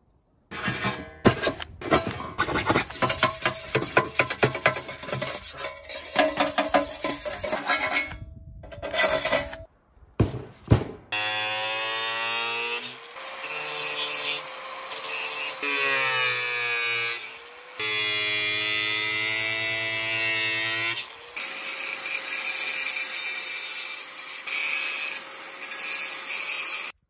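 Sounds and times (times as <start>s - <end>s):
scraping on a steel pan: 0.5s - 9.7s
knock: 10.2s - 11.0s
angle grinder whining: 11.2s - 27.0s.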